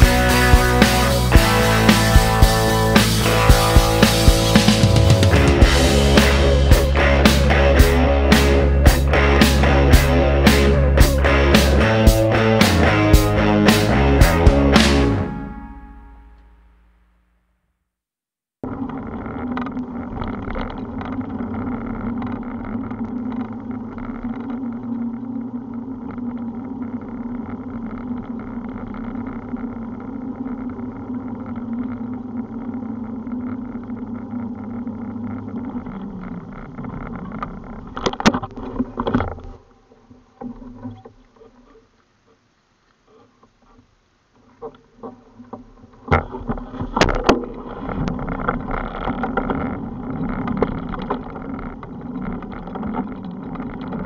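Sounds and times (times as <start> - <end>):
motor humming and winding down: 0.0 - 15.3.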